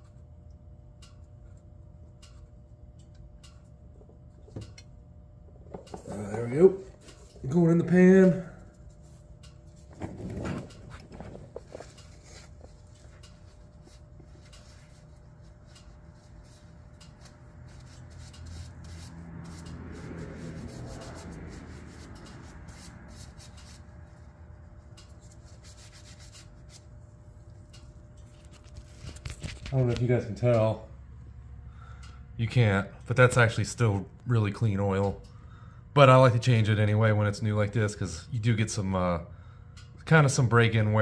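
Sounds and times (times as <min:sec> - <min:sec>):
handling sound: 0:08.9 - 0:18.3.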